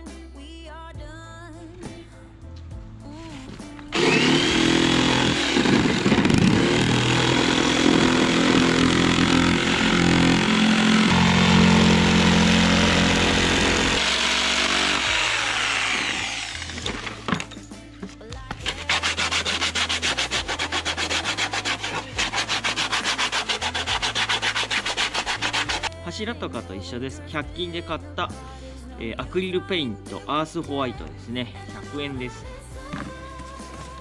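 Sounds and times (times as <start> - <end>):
electric jigsaw cutting wood: 3.9 - 17.5, 18.7 - 25.9.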